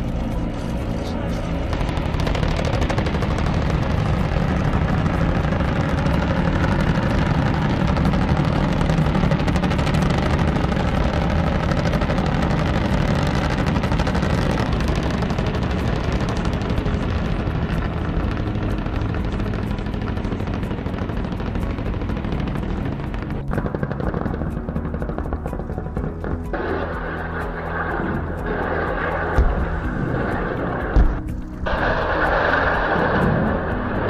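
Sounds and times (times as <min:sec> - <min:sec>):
helicopters flying: 0:00.0 - 0:34.0
rapid gunfire: 0:01.6 - 0:25.3.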